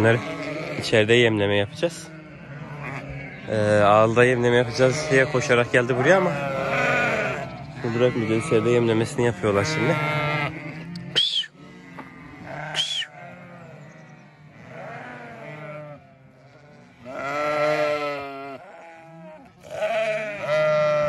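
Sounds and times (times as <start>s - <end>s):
sheep bleating: 0.0s - 21.0s
short high-pitched calls: 11.2s - 11.6s, 12.6s - 13.2s.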